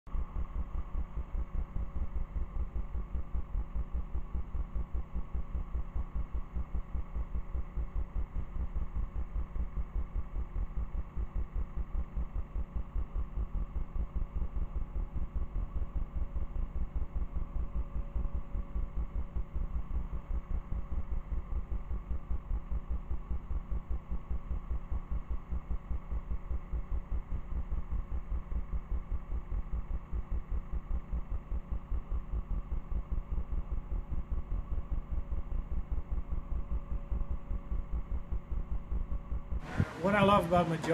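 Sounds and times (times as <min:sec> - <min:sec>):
faint hum: 0:00.1 - 0:40.9
boat engine throbbing: 0:36.0 - 0:40.9.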